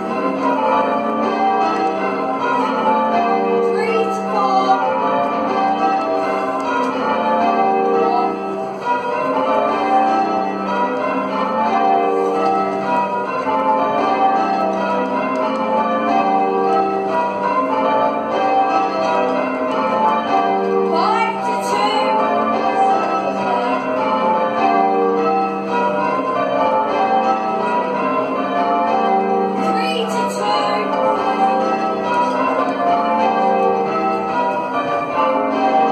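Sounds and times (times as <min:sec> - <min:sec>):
church bells ringing: 0:00.0 - 0:35.9.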